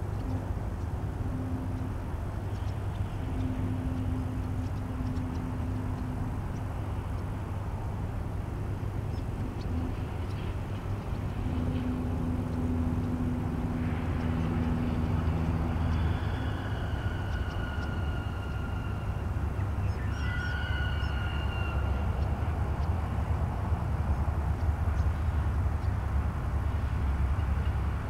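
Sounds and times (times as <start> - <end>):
road traffic: 0.0 - 28.0
steady low hum: 0.0 - 28.0
distant siren: 0.3 - 7.7, 11.3 - 23.2
vehicle engine passing: 9.3 - 20.0.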